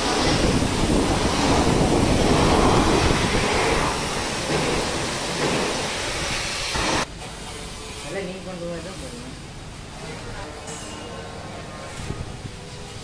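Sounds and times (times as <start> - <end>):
pressure washer spraying water: 0.0 - 10.4.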